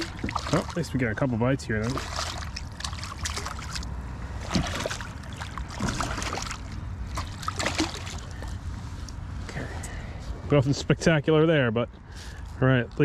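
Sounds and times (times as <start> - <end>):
water lapping against kayak hull: 0.0 - 9.2
steady low rumble: 0.0 - 13.0.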